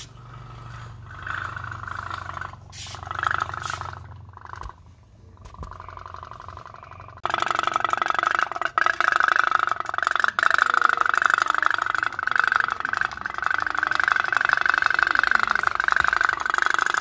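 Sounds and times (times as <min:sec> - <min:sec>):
toy steam boat putt-putt pulse: 0:07.2 - 0:17.0.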